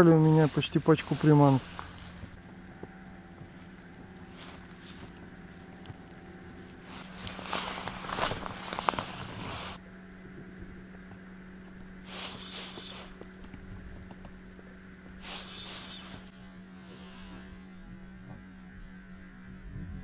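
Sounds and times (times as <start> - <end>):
steady low hum: 0.0 - 20.0
hissing swishes: 6.8 - 9.8, 12.0 - 13.4, 15.2 - 17.7.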